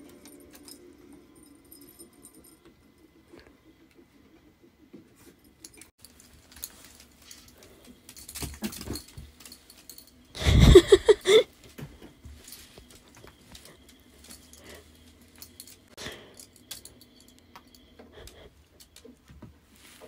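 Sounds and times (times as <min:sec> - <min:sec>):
collar and leash jingling: 0:05.6 - 0:11.4, 0:12.1 - 0:19.0
animals scuffling on wooden floor: 0:11.5 - 0:15.4, 0:19.0 - 0:20.0.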